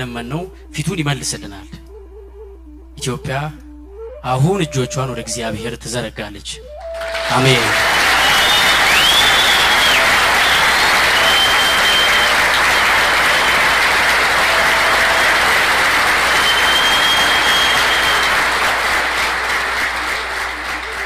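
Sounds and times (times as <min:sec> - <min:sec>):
high held whistle tones: 0:06.6 - 0:19.1
audience applauding: 0:06.8 - 0:21.0.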